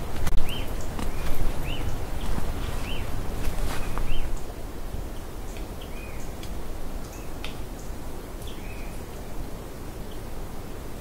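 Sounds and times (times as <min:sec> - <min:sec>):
steady low rush: 0:00.0 - 0:05.5
bird chirping: 0:00.3 - 0:04.5, 0:07.1 - 0:09.0.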